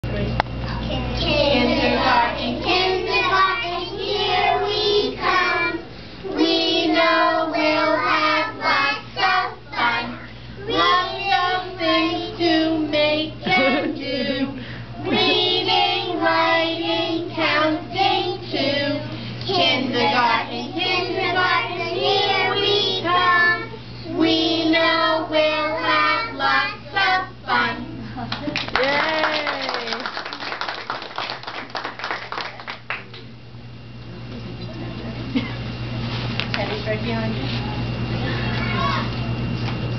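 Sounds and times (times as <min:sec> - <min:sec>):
young children singing: 0:01.2 - 0:27.8.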